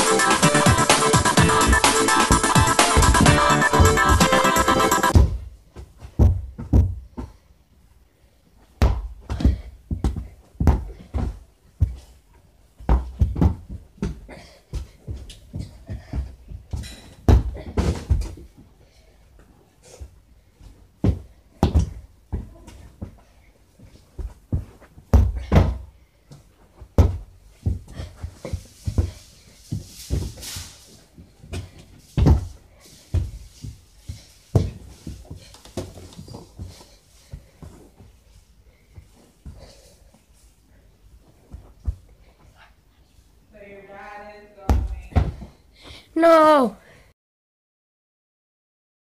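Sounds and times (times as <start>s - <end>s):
footfalls on carpet: 20.6s - 40.2s, 41.2s - 42.5s.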